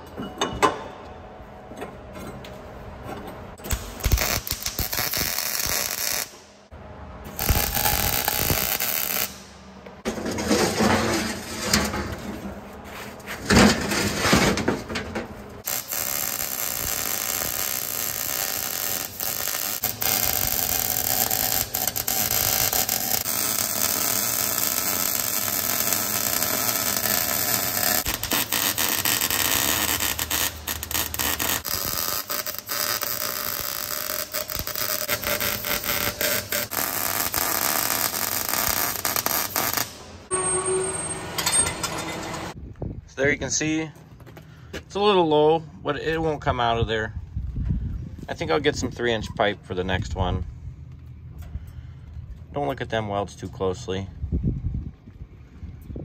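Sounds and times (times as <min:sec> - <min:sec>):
welding arc crackling: 0:03.6 - 0:06.6, 0:07.3 - 0:09.6, 0:15.6 - 0:40.3
steel scraping and knocking: 0:10.0 - 0:15.0.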